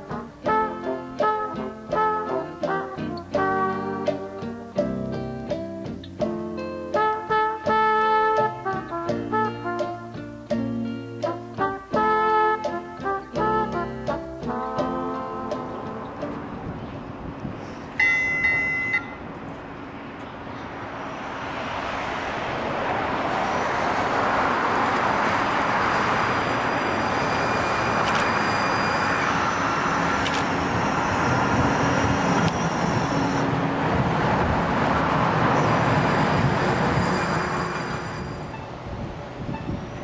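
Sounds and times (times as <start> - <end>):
streetcar rumbling on rails: 0.0 - 40.0
short horn note: 0.1 - 4.6
faint high electric whine: 25.9 - 33.4.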